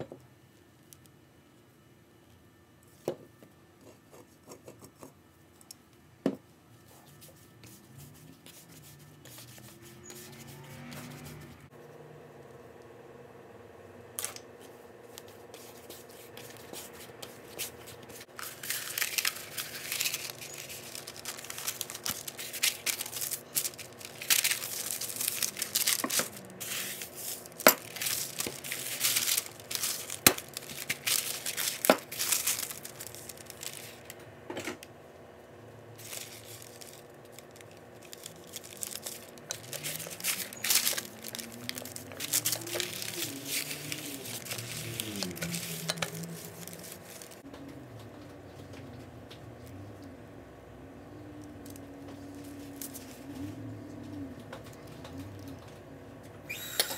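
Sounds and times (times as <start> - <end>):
dough squishing and tearing: 15.2 - 34.2, 36.0 - 47.5.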